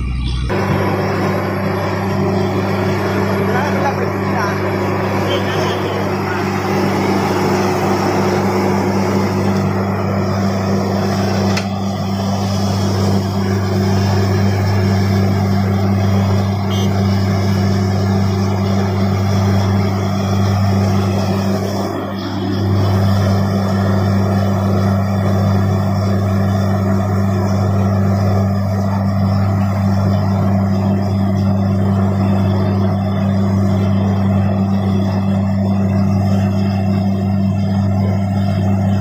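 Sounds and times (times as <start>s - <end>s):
engine and compressor drone: 0.0s - 39.0s
rushing compressed air and water: 0.5s - 39.0s.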